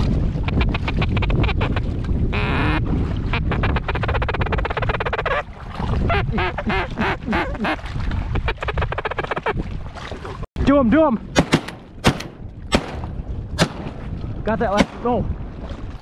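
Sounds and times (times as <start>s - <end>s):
wind rumble on microphone: 0.0s - 16.0s
ducks quacking: 0.5s - 1.8s, 2.4s - 5.4s, 6.1s - 7.8s.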